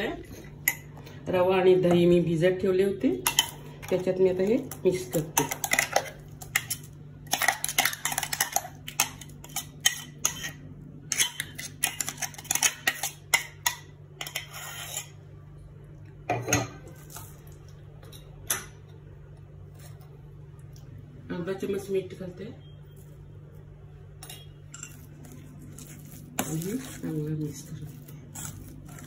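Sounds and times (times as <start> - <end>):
metal spoon scraping steel bowl: 7.4 - 13.4, 14.2 - 15.2.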